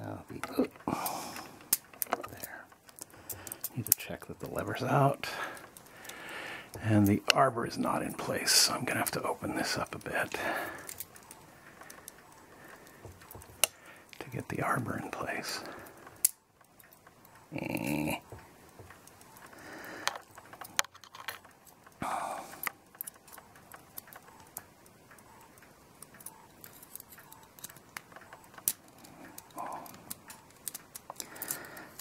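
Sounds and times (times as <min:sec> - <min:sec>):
light metal clicks and taps: 0:10.8 - 0:14.4, 0:22.6 - 0:32.0
breaths or grunts of effort: 0:17.5 - 0:18.3, 0:22.0 - 0:22.7.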